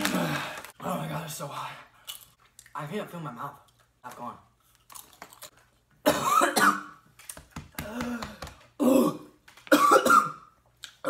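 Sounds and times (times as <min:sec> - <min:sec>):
man coughing: 0:06.0 - 0:06.9, 0:08.8 - 0:10.5.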